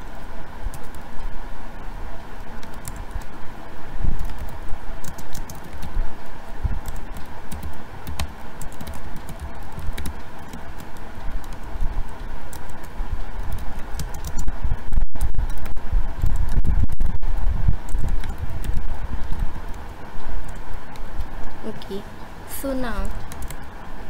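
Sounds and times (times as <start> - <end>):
steady background hum: 0.0 - 24.0
computer keyboard typing: 0.7 - 1.0, 2.6 - 3.3, 4.1 - 6.0, 6.8 - 14.5, 17.8 - 21.3, 23.2 - 23.7.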